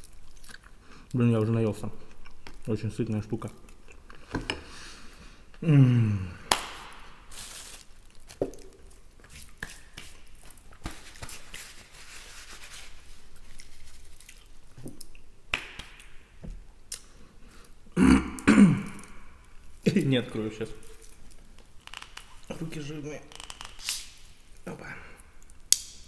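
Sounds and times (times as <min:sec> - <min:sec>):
paper napkin rustling: 0:07.3 - 0:08.1, 0:09.3 - 0:14.6
man burping loudly: 0:18.0 - 0:19.2.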